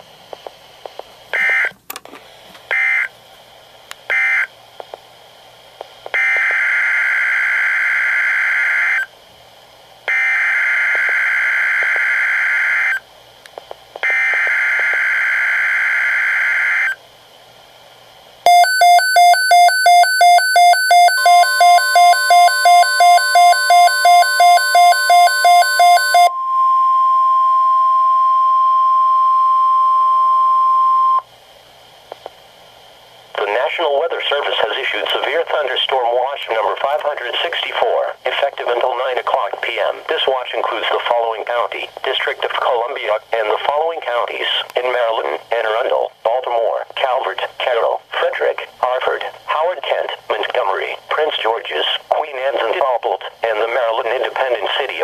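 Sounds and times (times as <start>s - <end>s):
pulsing alarm beeps: 18.5s - 31.2s
steady warning alarm tone: 18.5s - 31.2s.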